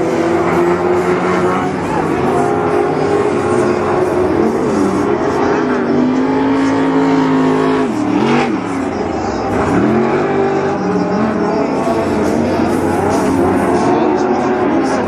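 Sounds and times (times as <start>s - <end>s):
race truck engines revving: 0.0s - 15.0s.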